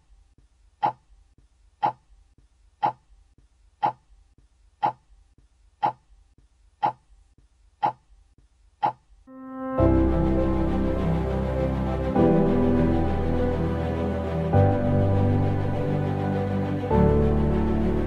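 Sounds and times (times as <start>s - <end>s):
music: 9.3s - 18.0s.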